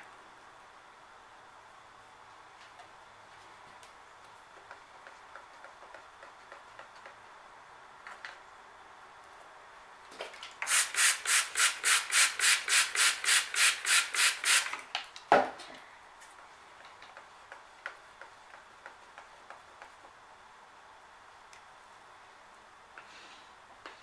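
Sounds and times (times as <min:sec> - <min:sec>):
spray bottle squirting: 0:10.6 - 0:14.8.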